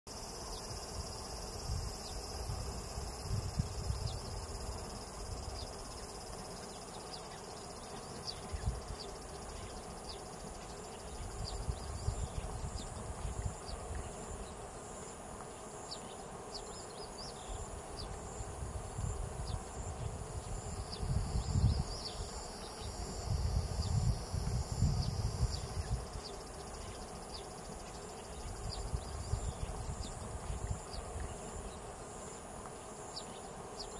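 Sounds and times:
insects trilling: 0.1 - 33.9.

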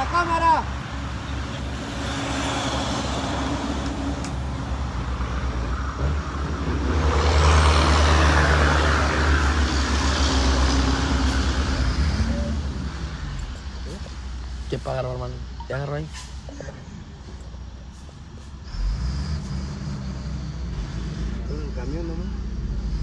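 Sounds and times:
road and traffic noise: 0.0 - 23.0
diesel truck engine running: 0.6 - 15.7.

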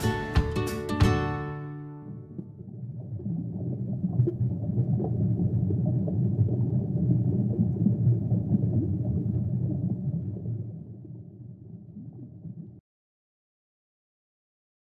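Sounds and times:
low underwater rumble: 2.0 - 12.8.

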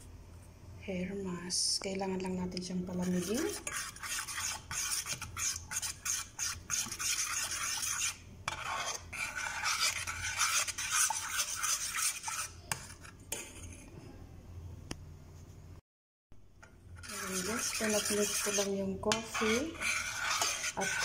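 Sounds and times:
metal spoon stirring in saucepan: 2.6 - 14.0, 16.6 - 21.0.

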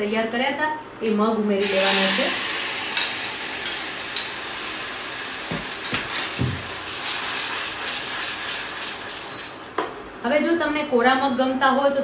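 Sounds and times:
hot oil sizzling: 1.6 - 9.8.

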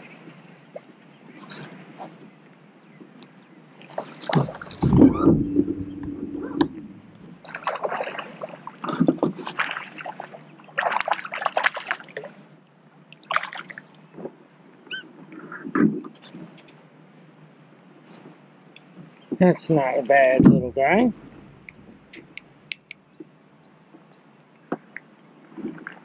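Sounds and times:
water splashing: 3.8 - 12.4, 13.1 - 13.9, 20.1 - 22.6
fish thrashing at the surface: 7.4 - 8.6.

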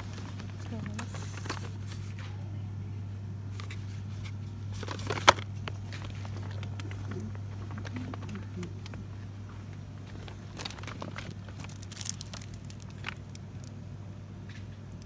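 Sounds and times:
boxes clicking and rustling: 0.0 - 2.2, 3.6 - 9.1, 10.0 - 13.6
steady low hum: 0.0 - 15.0.

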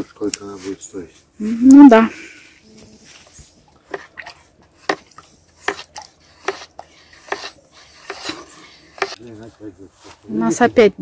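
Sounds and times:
stick stirring water in bucket: 3.7 - 9.2.

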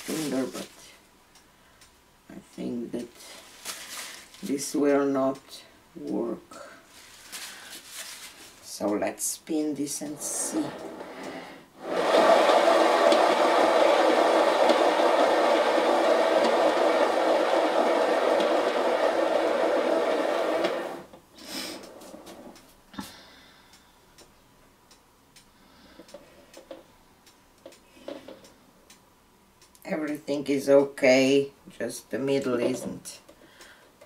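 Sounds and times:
turntable whirring: 10.1 - 22.8.

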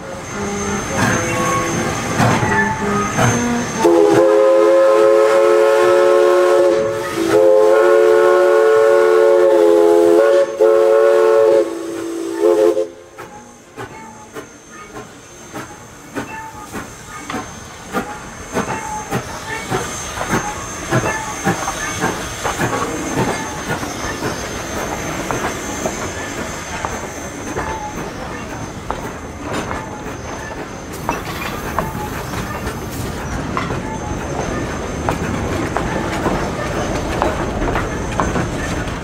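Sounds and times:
steam locomotive chime whistle: 0.0 - 28.8
train wheels clanking: 0.0 - 39.0.

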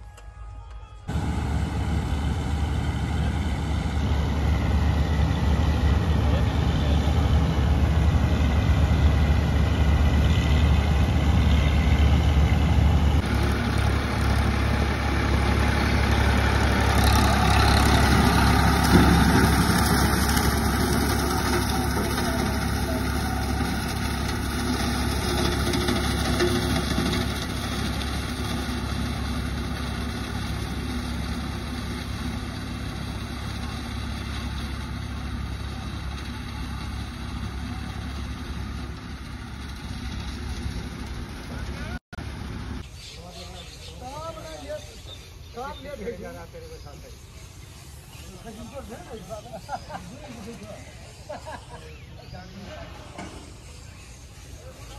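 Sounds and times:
combine harvester running: 0.0 - 42.9
tractor driving straw cutter: 1.1 - 54.9.

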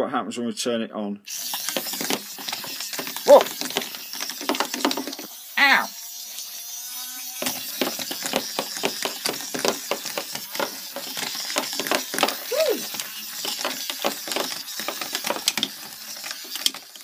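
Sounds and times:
small toy motor spinning: 1.3 - 17.0
rig clattering on cutting mat: 7.4 - 16.9.

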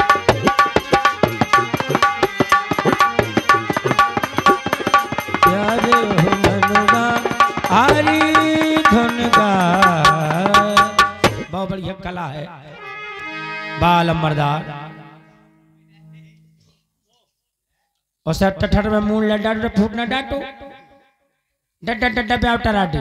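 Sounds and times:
fast hand drum rhythm: 0.0 - 11.5
wavering held melody: 0.0 - 11.5.

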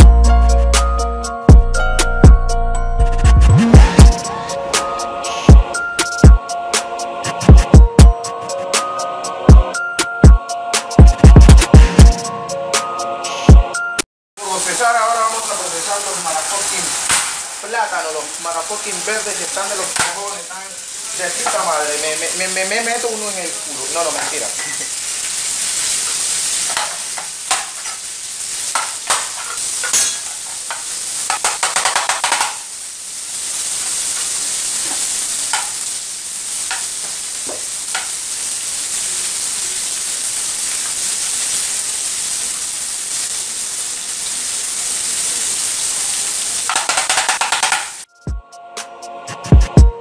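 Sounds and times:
food sizzling in a pan: 3.5 - 9.8, 14.4 - 48.1.

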